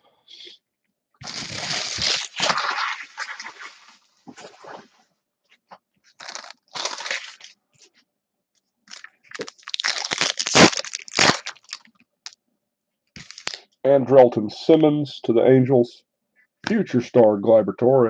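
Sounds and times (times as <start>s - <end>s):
plastic packaging crinkling: 1.2s - 4.8s, 6.1s - 7.6s, 8.9s - 12.4s, 13.2s - 13.6s.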